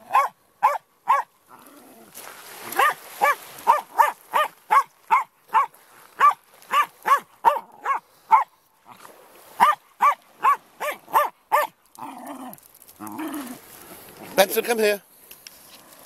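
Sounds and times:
dog barking: 0.0 - 1.3, 2.8 - 8.5, 9.6 - 11.8
wave washing over pebbles: 2.0 - 4.9.

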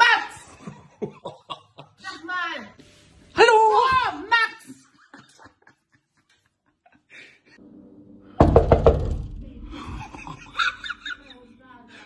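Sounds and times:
low rumble: 7.7 - 10.2
loud knocks: 8.4 - 9.4.

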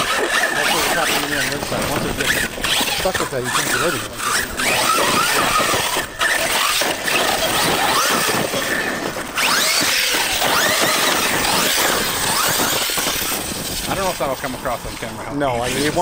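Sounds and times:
electric motor whining: 0.0 - 16.0
tyres spraying dirt and gravel: 9.4 - 16.0.

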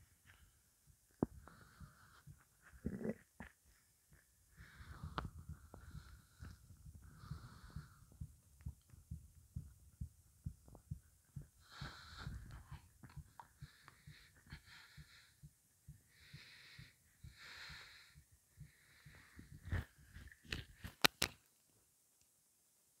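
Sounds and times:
soft breaths: 0.0 - 21.0
stomach gurgling and rumbling: 1.2 - 14.3.

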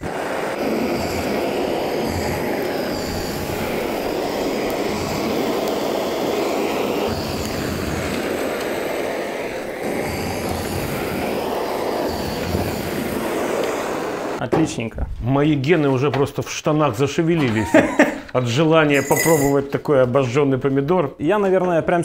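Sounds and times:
gas torch roaring: 0.0 - 14.4, 18.8 - 19.6.

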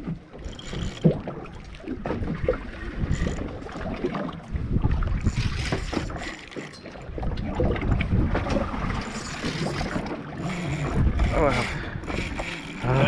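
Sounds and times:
low rumble of water and hull: 0.0 - 13.0
wind buffeting microphone: 2.0 - 6.3, 7.1 - 13.0.

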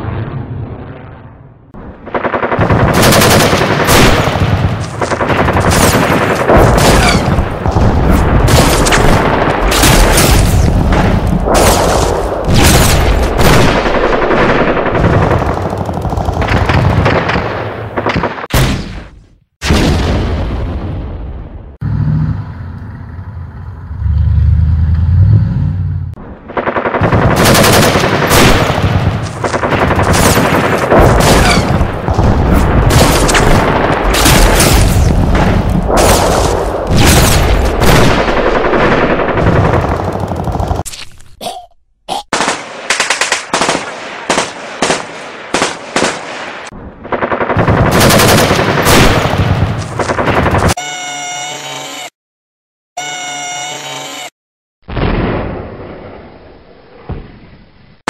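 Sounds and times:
automatic gunfire: 2.1 - 4.4, 26.5 - 32.2, 42.3 - 46.3, 47.1 - 50.8
low rumble: 20.4 - 26.6.

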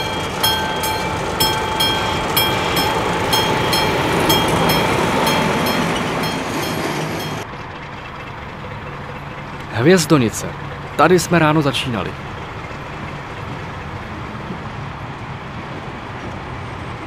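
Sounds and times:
train running noise: 0.0 - 17.0
train wheels clicking over rail joints: 0.0 - 17.0.

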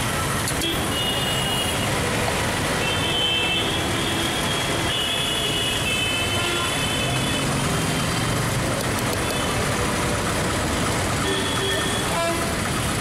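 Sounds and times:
street traffic noise: 0.0 - 13.0
vehicle horn: 2.8 - 7.4, 11.2 - 12.6.

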